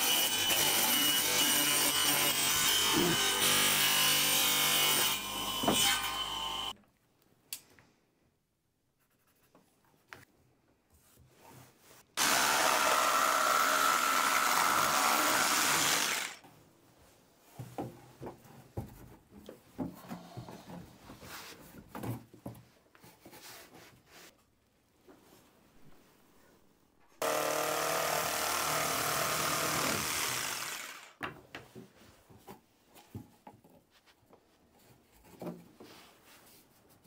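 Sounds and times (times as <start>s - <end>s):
jigsaw cutting hardboard: 0.0s - 6.7s, 12.2s - 16.4s, 27.2s - 31.2s
light knocks and scrapes of handling: 31.6s - 37.0s.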